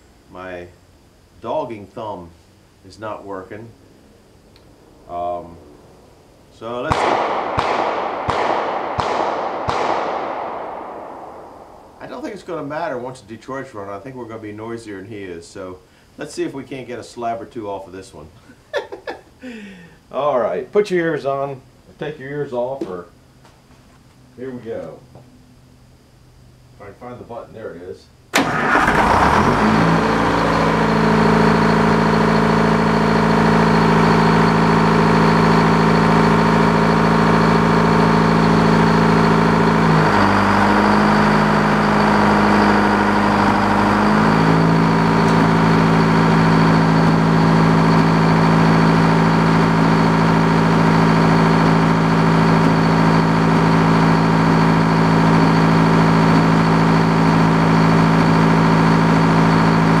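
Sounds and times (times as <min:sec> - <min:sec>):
diesel engine running: 0:05.1 - 0:12.9, 0:28.4 - 1:00.0
thin high whine: 0:29.9 - 1:00.0.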